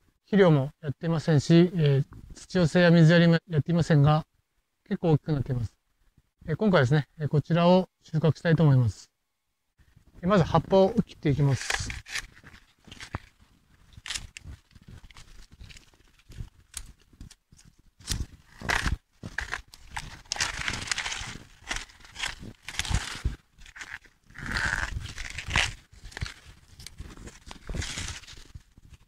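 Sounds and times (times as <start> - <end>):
shears snipping stalks: 11.5 - 13.3, 13.9 - 28.4
rustling leaves and straw: 18.0 - 29.0.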